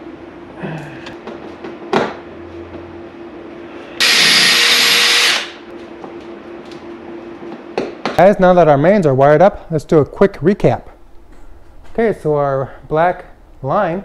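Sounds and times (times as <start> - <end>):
cordless drill running: 4.0 - 5.6.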